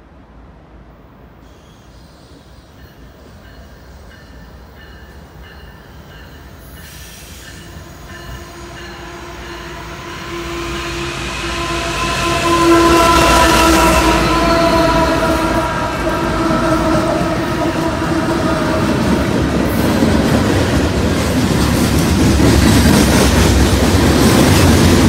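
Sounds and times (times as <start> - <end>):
diesel locomotive rumble: 6.0 - 25.0.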